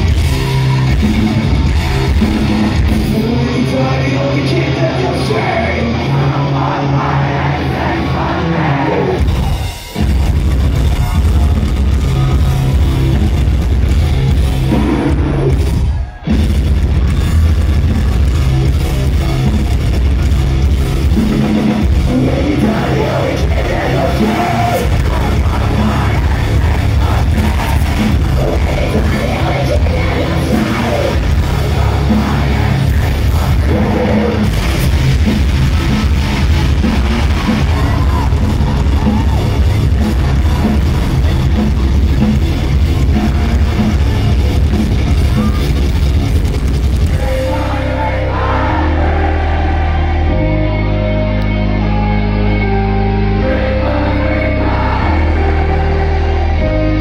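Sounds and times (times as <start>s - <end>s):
drums: 0.0s - 50.8s
distorted guitars: 0.0s - 57.0s
shouted sung vocals: 3.7s - 9.7s, 22.0s - 34.5s, 47.1s - 52.5s, 53.1s - 57.0s.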